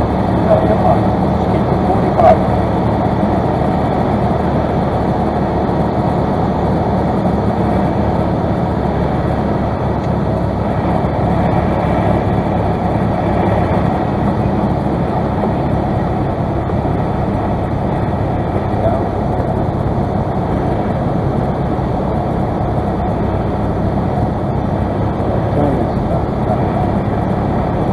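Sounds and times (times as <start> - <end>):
airflow noise: 0.0 - 27.9
airplane engine and propeller drone: 0.0 - 27.9.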